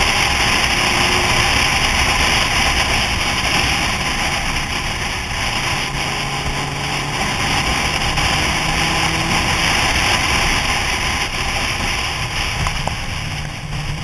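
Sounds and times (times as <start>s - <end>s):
motorcycle engine: 0.0s - 14.0s
wind and road noise: 0.0s - 14.0s.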